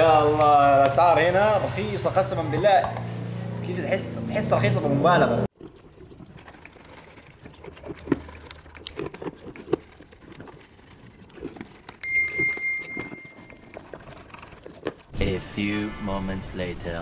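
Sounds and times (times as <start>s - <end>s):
bell ringing: 12.0s - 13.6s.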